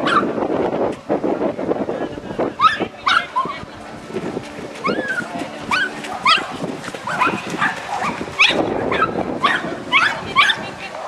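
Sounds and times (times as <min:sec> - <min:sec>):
dog barking: 0:00.0 - 0:00.3, 0:02.6 - 0:03.5, 0:05.7 - 0:11.0.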